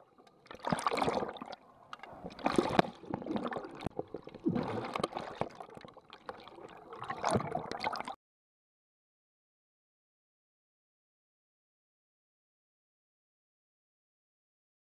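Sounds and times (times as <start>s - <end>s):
underwater bubbles and rushing water: 0.0s - 8.2s
sharp underwater clicks and knocks: 0.2s - 6.5s.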